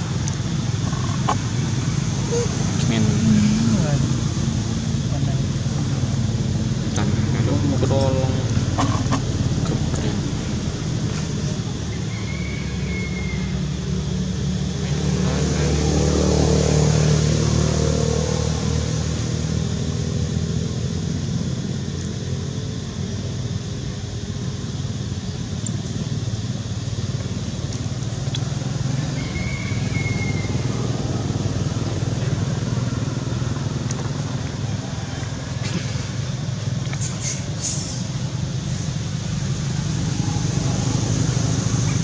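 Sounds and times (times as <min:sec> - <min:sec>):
vehicle engine passing by: 0:00.8 - 0:22.5, 0:26.5 - 0:42.0.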